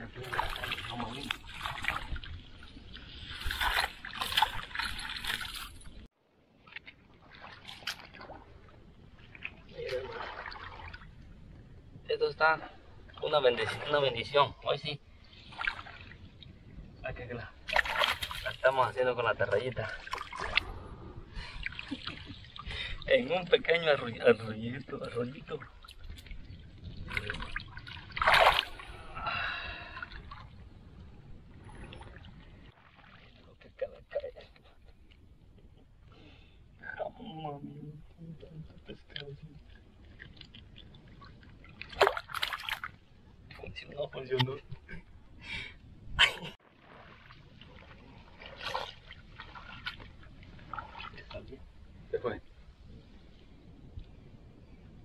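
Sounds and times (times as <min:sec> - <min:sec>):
water sloshing and dribbling: 0:00.0 - 0:36.4, 0:37.0 - 0:45.2, 0:46.2 - 0:54.1
fish thrashing in shallow water: 0:00.3 - 0:06.1, 0:17.6 - 0:18.6, 0:25.7 - 0:29.1, 0:39.7 - 0:43.1, 0:46.6 - 0:51.2.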